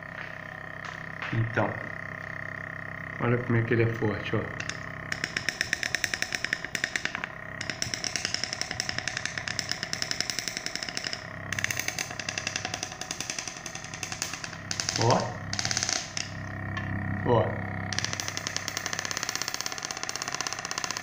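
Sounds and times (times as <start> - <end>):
piston engine knocking rhythmically: 4.6 - 16.4, 17.9 - 21.0.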